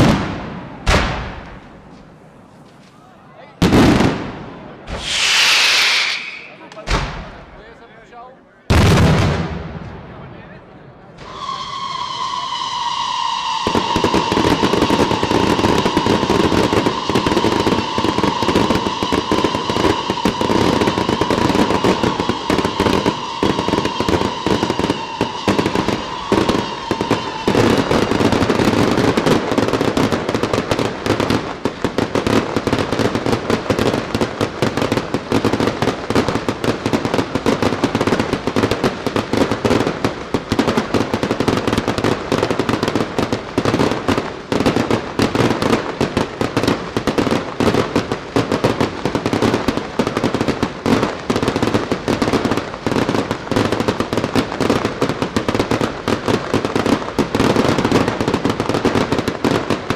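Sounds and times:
fireworks bangs and crackling: 0.0s - 7.8s, 8.7s - 59.9s
steady high whistle: 4.9s - 6.8s, 11.2s - 29.0s.

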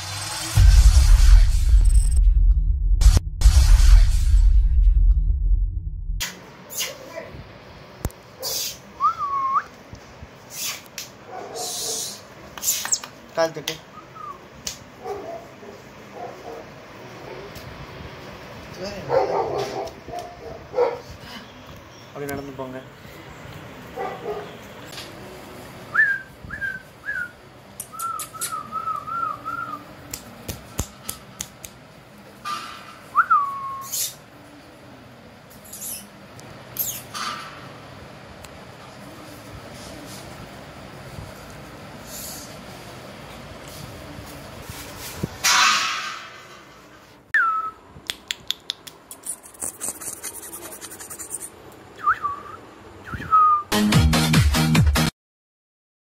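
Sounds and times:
person whistling: 9.0s - 9.7s, 52.0s - 53.7s
light ticks and scratches: 49.1s - 51.6s.

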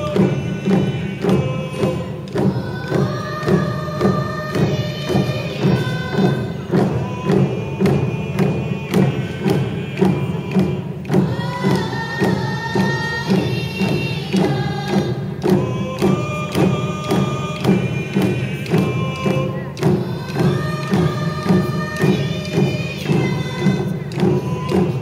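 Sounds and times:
frame drums beating: 0.0s - 25.0s
group singing: 0.0s - 25.0s.

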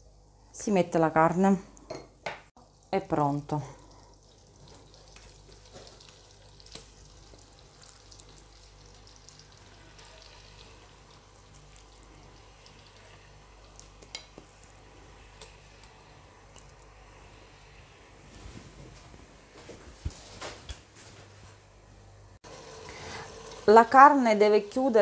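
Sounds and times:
meat sizzling in butter: 4.1s - 14.8s.

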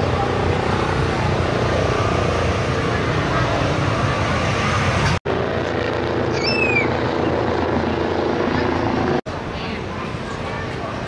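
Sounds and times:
faint voices: 0.0s - 4.5s, 7.7s - 11.0s
outdoor rumble: 0.0s - 11.0s.

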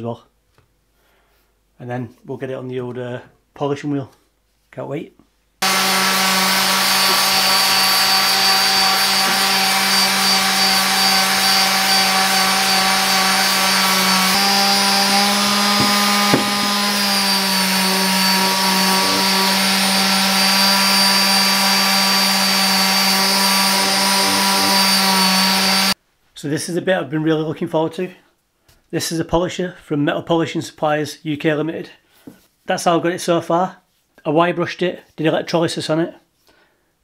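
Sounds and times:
orbital sander humming: 5.6s - 26.0s
small knock: 15.8s - 16.7s.

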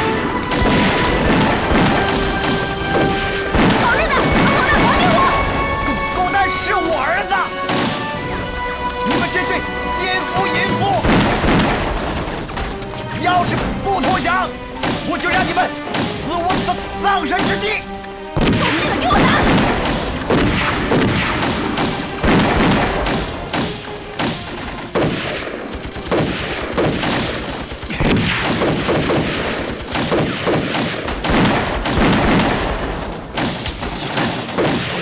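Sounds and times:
rapid pistol shots: 0.5s - 5.6s, 7.6s - 8.2s, 11.0s - 12.8s, 14.8s - 15.2s, 15.9s - 17.7s, 18.4s - 35.0s.

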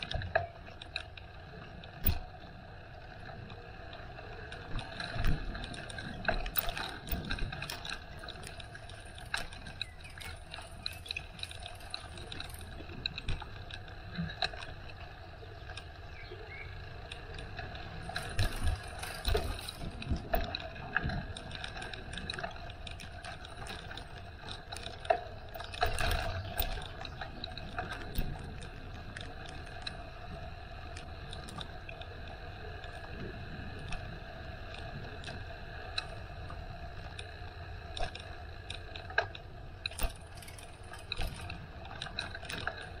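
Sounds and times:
bicycle clicks and rattles: 0.0s - 43.0s
bicycle rolling hum: 0.0s - 43.0s.

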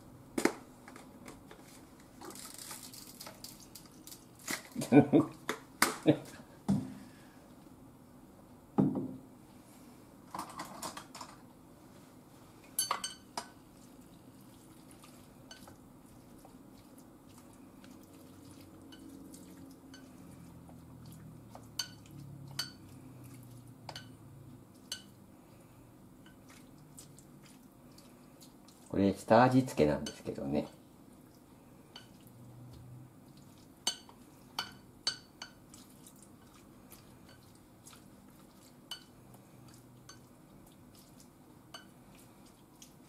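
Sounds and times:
dull knock: 8.8s - 9.2s.

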